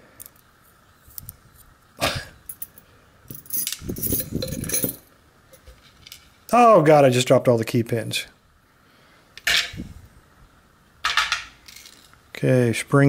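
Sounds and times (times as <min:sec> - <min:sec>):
lock pins clattering: 0:02.4 - 0:06.3, 0:11.0 - 0:12.2
small metal clicks and rattles: 0:02.5 - 0:05.0, 0:05.6 - 0:06.4.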